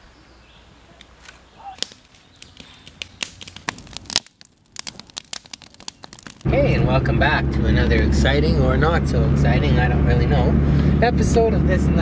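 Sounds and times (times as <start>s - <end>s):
fire crackling and popping: 1.2s - 8.3s.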